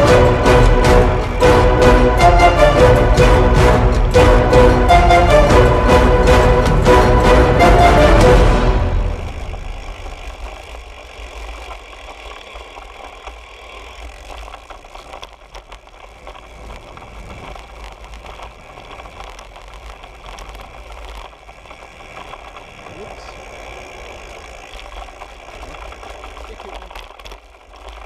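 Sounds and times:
bike rattles and clicks: 0.0 - 28.0
tyre noise on tarmac: 5.6 - 28.0.

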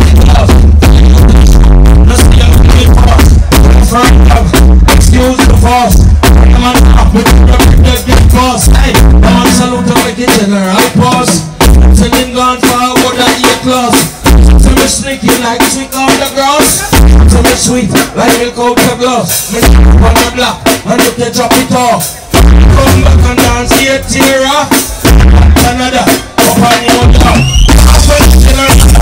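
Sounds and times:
deep bass notes: 0.0 - 12.5, 14.1 - 15.0, 16.9 - 17.8, 19.5 - 20.3, 22.2 - 29.0
live band playing through pa: 0.0 - 29.0.

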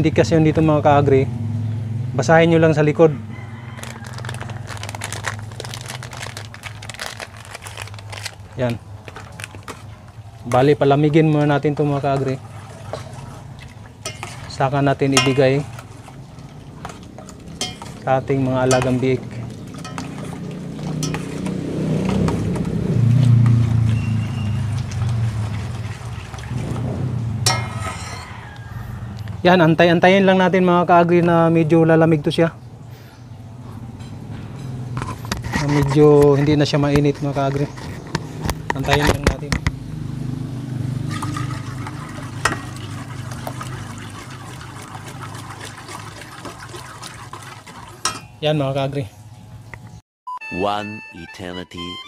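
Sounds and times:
vehicle engine humming: 0.0 - 45.3
spoon stirring thick mix: 3.3 - 26.6
spoon clinking in metal pot: 14.0 - 15.8, 17.2 - 21.5, 27.4 - 28.4, 48.0 - 48.4.

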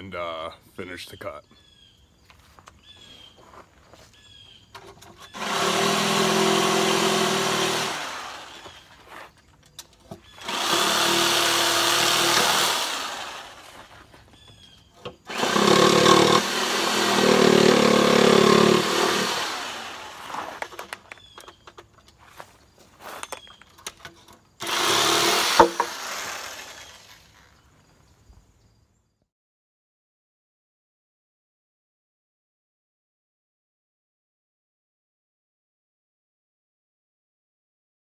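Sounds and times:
electric jigsaw cutting wood: 5.1 - 9.0, 10.3 - 13.9, 15.2 - 21.0, 24.6 - 27.4.

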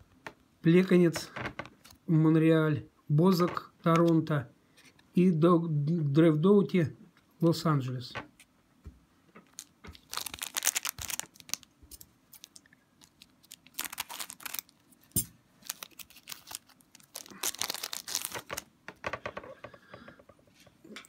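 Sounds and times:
wrapper crinkling and tearing: 9.4 - 18.7.

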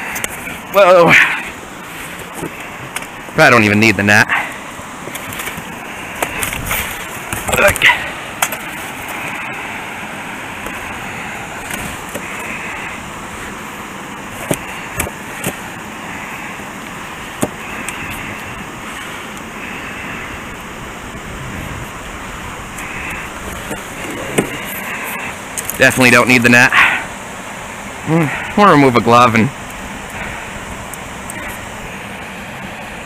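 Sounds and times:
water rushing over spillway: 0.0 - 17.8.

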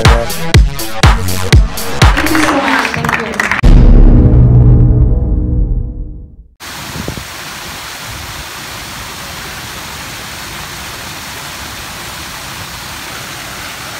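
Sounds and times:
music: 0.0 - 6.5
fountain jets splashing: 6.6 - 13.9.

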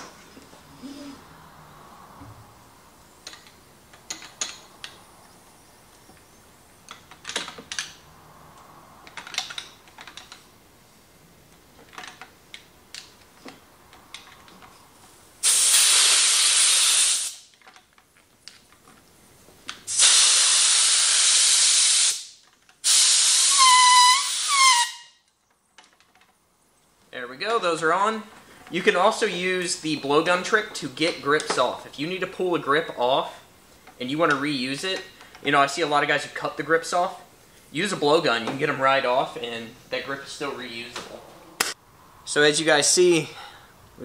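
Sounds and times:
air blowgun hissing: 15.4 - 17.5, 19.9 - 25.0
air whistling from under grip: 15.4 - 17.5, 19.9 - 25.2.

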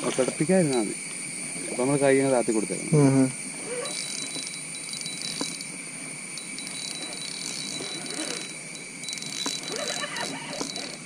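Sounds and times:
high-pitched insect drone: 0.0 - 11.0
fishing reel ticking: 3.5 - 11.0.

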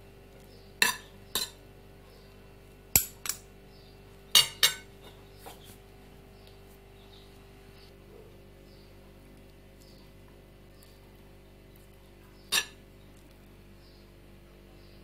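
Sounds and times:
metal spoons clinking on ceramic plate: 0.8 - 1.6, 4.4 - 4.9, 12.5 - 12.8.

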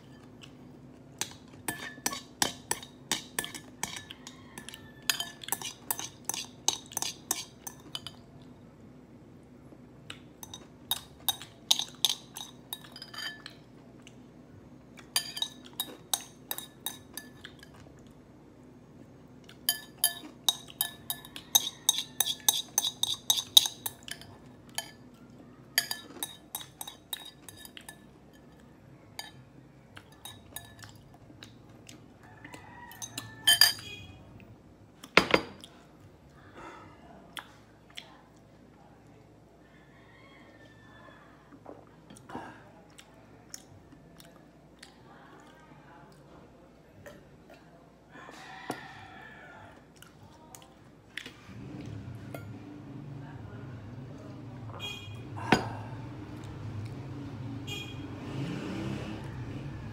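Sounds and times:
chopsticks clinking on bowl: 1.2 - 8.3, 10.4 - 13.6, 15.1 - 17.8, 19.6 - 25.1, 25.8 - 28.6, 30.0 - 31.0, 32.9 - 34.0.

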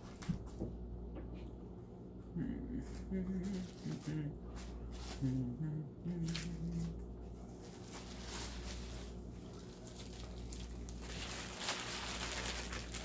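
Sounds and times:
low humming voice: 0.0 - 13.0
paper rustling and crinkling: 3.4 - 5.4, 6.2 - 13.0.

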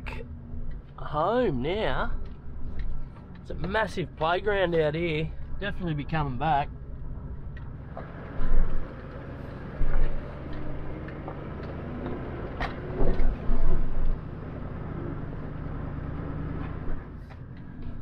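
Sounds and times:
car engine drone: 0.0 - 18.0.

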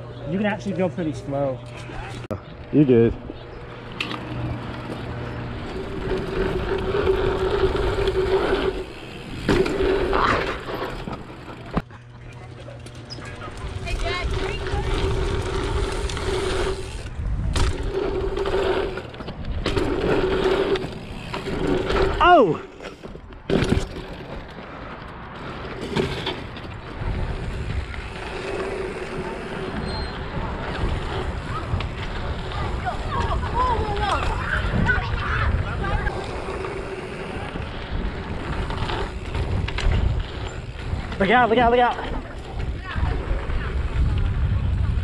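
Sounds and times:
steady whir: 0.0 - 22.8, 25.4 - 45.0
bike tyres on packed dirt: 1.7 - 45.0
wind buffeting microphone: 2.4 - 11.7, 13.3 - 22.2, 26.7 - 45.0.

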